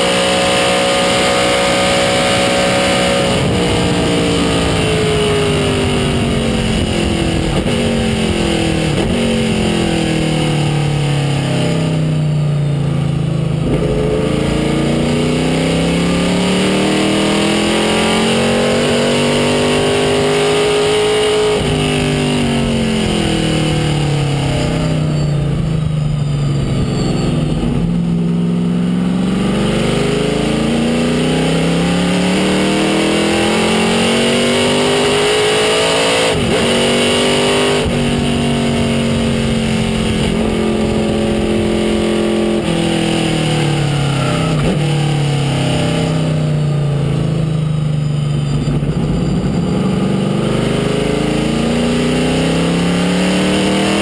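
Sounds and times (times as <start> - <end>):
race car engine: 0.0 - 54.0.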